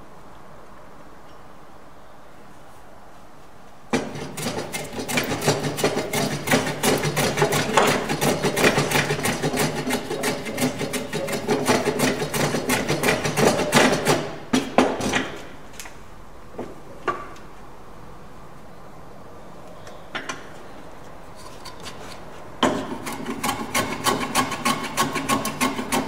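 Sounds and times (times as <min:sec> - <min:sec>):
hand plane strokes on wood: 0:04.0 - 0:14.4, 0:21.4 - 0:26.0.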